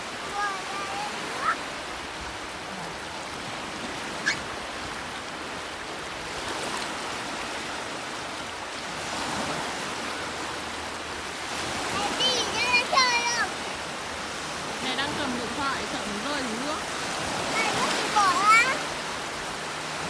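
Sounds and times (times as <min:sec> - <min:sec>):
small waves washing on beach: 0:00.0 - 0:20.0
brief high squeak: 0:04.2 - 0:04.4.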